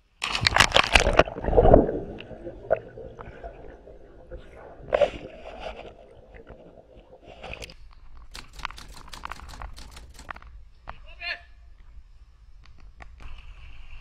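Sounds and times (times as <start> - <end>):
sharp clicks and splashes: 0.2 - 10.6
muffled underwater rush and bubbles: 0.4 - 7.8.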